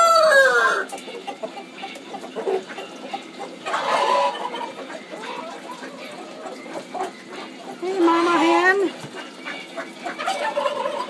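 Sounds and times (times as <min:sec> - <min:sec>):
rooster crowing: 0:00.0 - 0:00.9
chickens clucking: 0:00.0 - 0:11.0.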